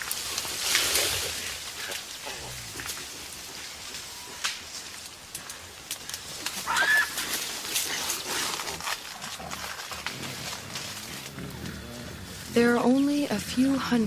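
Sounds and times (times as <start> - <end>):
leaves and stems crackling: 0.0 - 14.0
animal call: 6.6 - 7.4.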